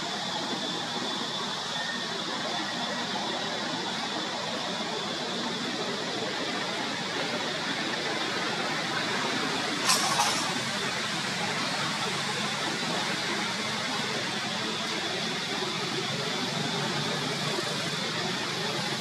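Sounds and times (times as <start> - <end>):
brief sharp noise: 9.8 - 10.6.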